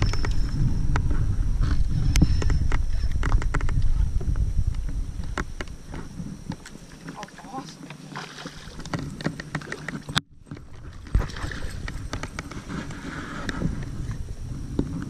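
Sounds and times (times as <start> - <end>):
low rumble: 0.0 - 6.5
clicks and knocks on a boat: 2.2 - 15.0.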